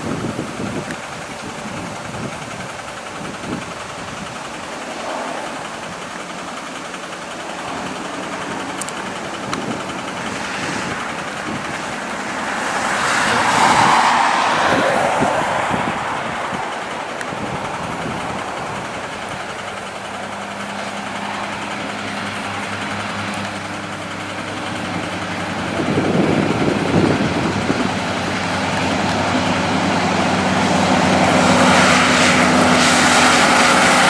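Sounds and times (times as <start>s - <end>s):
wind buffeting microphone: 0.0s - 20.8s, 22.8s - 34.0s
distant truck diesel engines: 0.0s - 34.0s.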